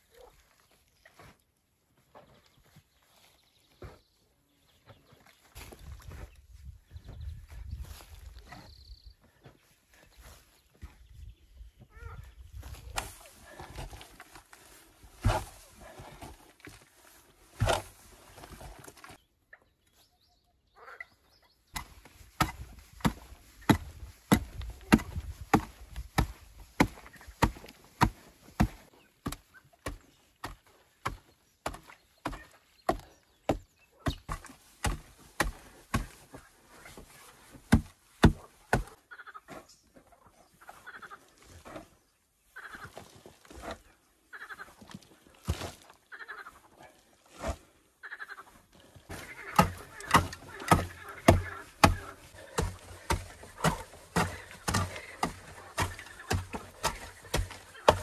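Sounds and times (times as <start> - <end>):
hand tool chopping into earth: 15.2 - 15.6, 17.6 - 18.0, 21.8 - 36.2, 37.7 - 39.0, 49.1 - 58.0.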